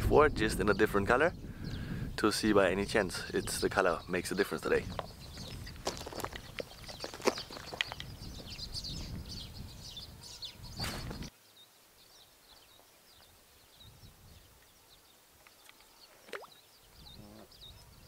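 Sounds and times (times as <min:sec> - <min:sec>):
wind rumble on microphone: 0:00.0 - 0:11.3, 0:13.7 - 0:14.6, 0:16.8 - 0:18.0
small birds chirping: 0:00.4 - 0:18.0.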